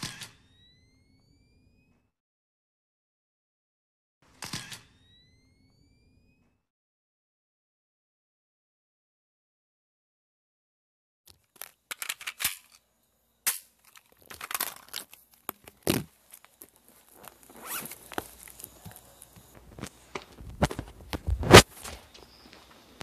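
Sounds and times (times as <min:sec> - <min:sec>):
rustling and crinkling: 0:13.7 - 0:23.0.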